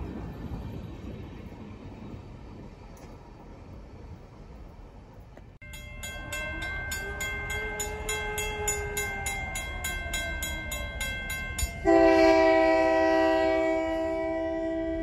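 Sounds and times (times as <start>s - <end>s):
crossing bell ringing: 5.6s - 14.5s
locomotive horn: 6.2s - 15.0s.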